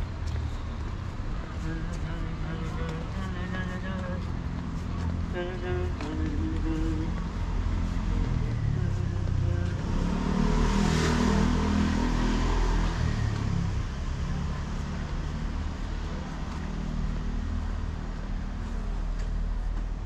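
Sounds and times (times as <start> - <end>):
low engine hum: 0.0 - 20.0
car driving past: 7.0 - 19.3.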